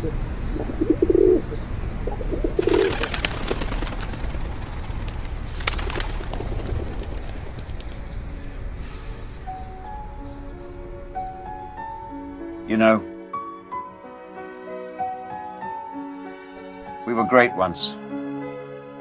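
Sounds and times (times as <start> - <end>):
pigeons cooing: 0.0 - 4.8
pigeon wings flapping: 2.4 - 8.1.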